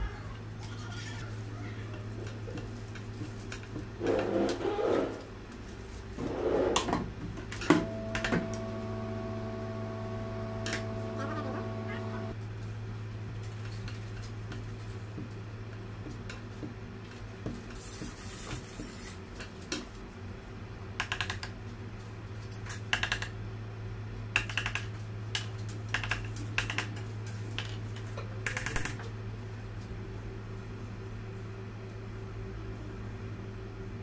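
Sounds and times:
steady low hum: 5.4 - 13.4.

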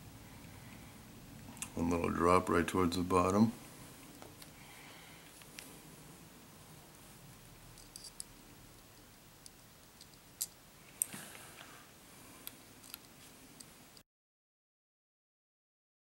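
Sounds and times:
small metallic clicks and ticks: 7.7 - 11.1, 12.4 - 13.7.

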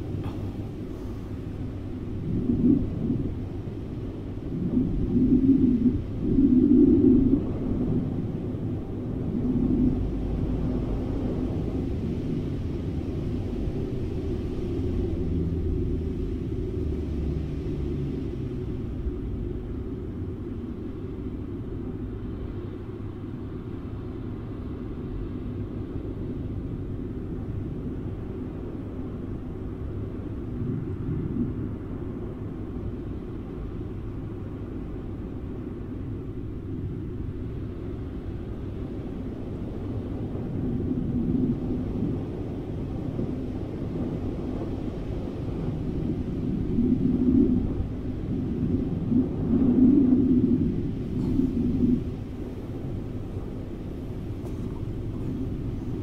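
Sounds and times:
rushing wind rumble: 0.0 - 56.0.

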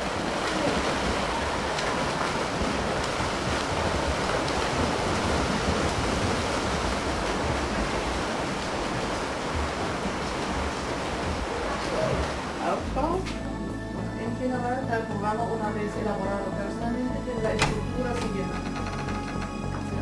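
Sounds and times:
swimmers splashing water: 0.0 - 13.6.

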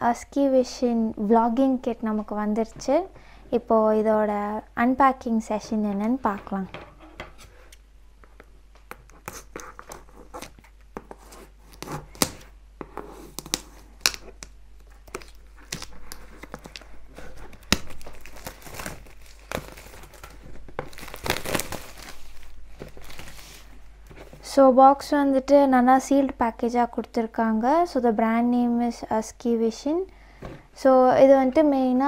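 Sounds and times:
plastic wrap crinkling and tearing: 13.5 - 23.8.

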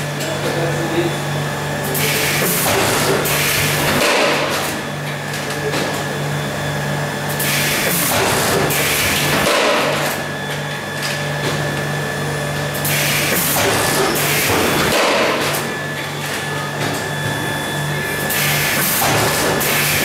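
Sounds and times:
machine humming: 0.0 - 20.0.

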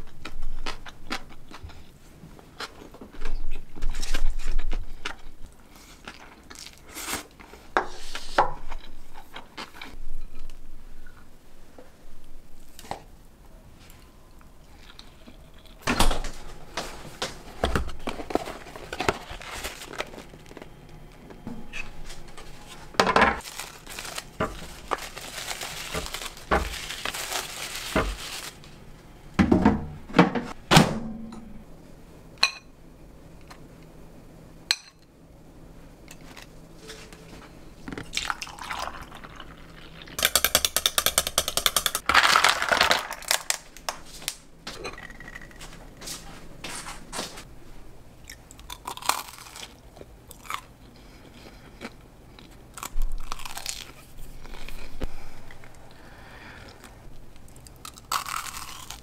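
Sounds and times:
plastic wrappers rustling: 17.8 - 20.7, 21.9 - 28.8, 42.0 - 44.5
liquid pouring: 38.2 - 40.2.

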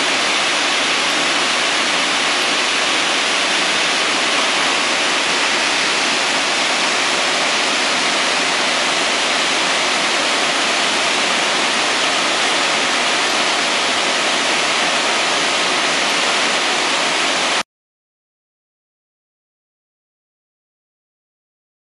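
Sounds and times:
sanding machine rushing noise: 0.0 - 17.6.

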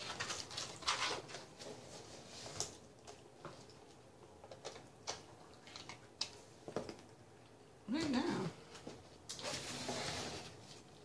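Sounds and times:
plastic food packaging crinkling: 0.0 - 1.6, 4.5 - 6.4.

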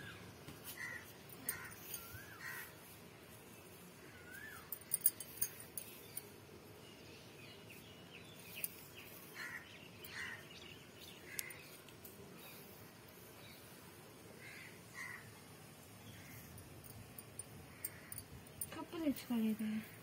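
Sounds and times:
small birds chirping: 0.0 - 20.0
crows cawing: 0.8 - 2.8, 9.4 - 10.5, 14.4 - 15.4.

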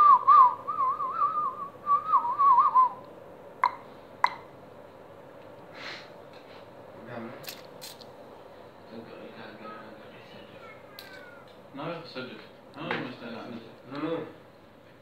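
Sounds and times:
person whistling a warbling tune: 0.0 - 3.0.

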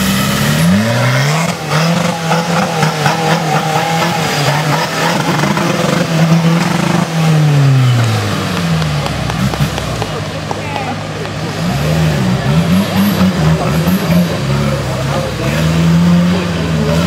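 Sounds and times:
truck engine revving: 0.0 - 17.0.

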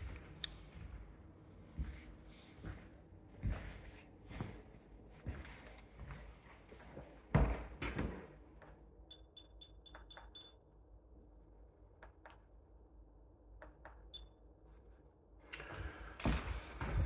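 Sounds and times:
footsteps on tiled floor: 1.7 - 8.3, 15.6 - 17.0.

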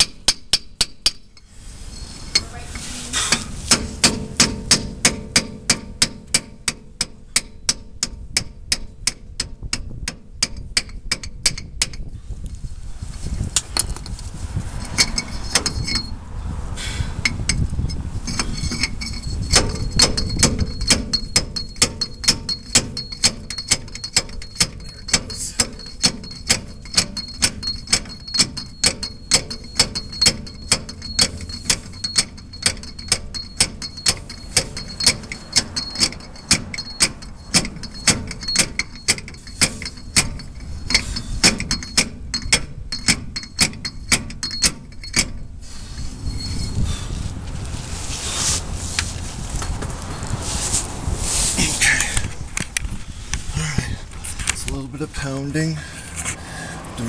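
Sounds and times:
sharp metallic ticks: 3.3 - 12.6, 14.8 - 16.2, 17.2 - 45.6.

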